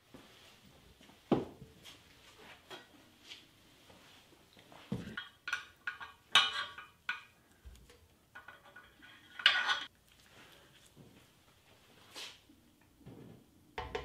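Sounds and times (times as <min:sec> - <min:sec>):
metal clinking and clanking: 0:05.1 - 0:09.9.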